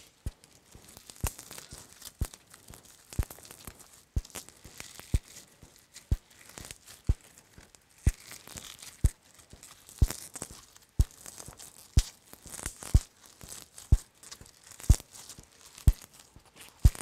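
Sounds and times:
slime squeezed with crunchy beads: 8.0s - 17.0s.

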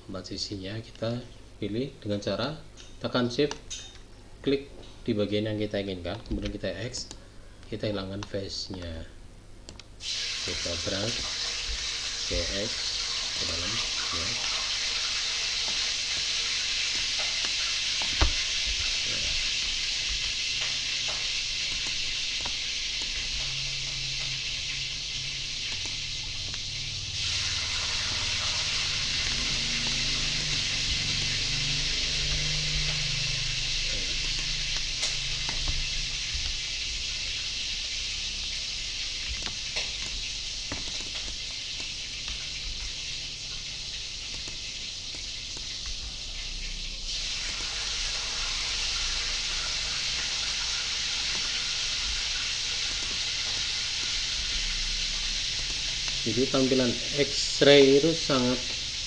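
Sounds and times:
background hiss: 0.0s - 59.0s
low hum: 15.6s - 43.1s.

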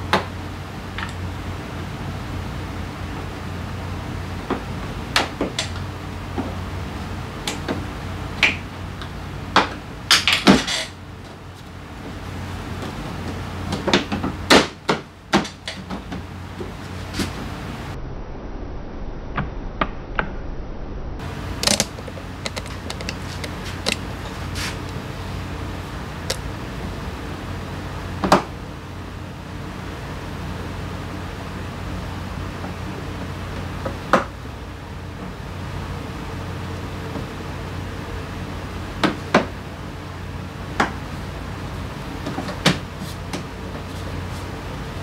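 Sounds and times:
steady low hum: 0.0s - 19.8s, 20.6s - 45.0s
tools clicking and knocking: 21.6s - 24.1s
scraping rattle: 21.6s - 24.8s.

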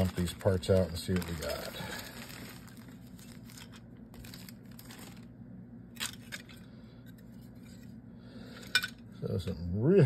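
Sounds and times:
plastic bag crinkling: 0.0s - 5.4s.

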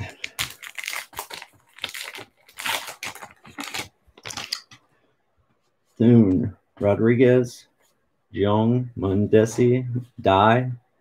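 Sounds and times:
wrapper tearing and crinkling: 0.0s - 4.7s.

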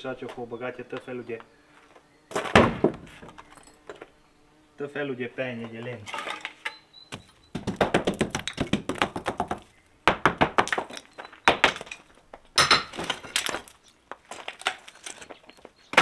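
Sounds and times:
hammer knocking on wood: 7.5s - 10.7s.

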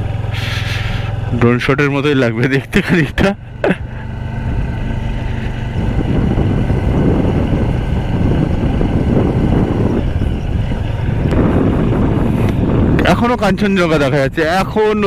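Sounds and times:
motorcycle engine running: 0.0s - 15.0s
wind buffeting microphone: 4.2s - 15.0s.

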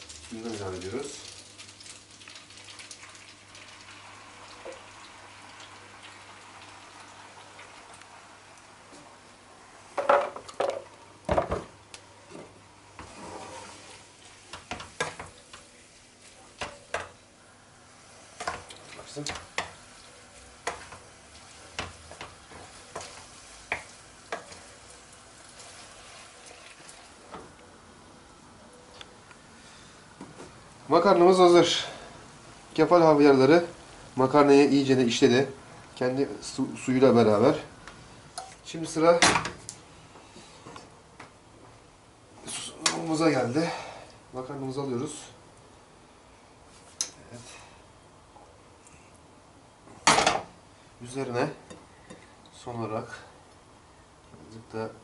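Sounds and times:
pasta sizzling in oil: 0.0s - 9.2s, 11.9s - 28.2s.

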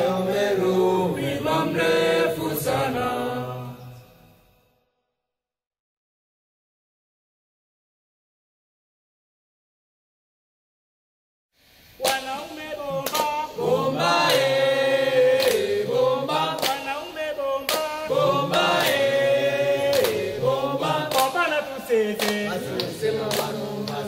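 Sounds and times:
choir singing in harmony: 0.0s - 4.3s, 12.2s - 24.0s.

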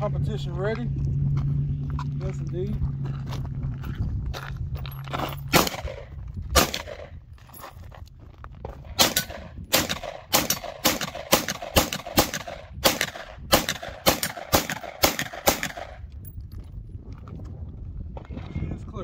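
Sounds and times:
pistol shots: 5.5s - 7.1s, 9.0s - 16.0s.

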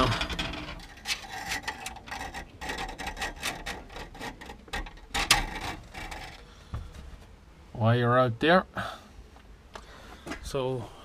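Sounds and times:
cable rubbing and scraping: 0.0s - 6.5s.

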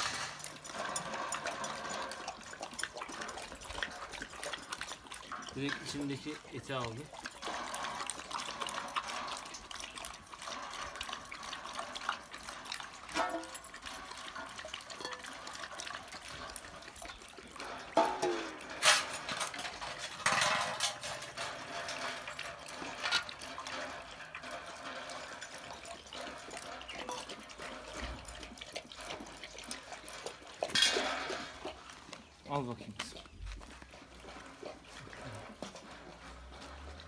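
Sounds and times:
dog drinking from bowl: 0.0s - 37.0s.

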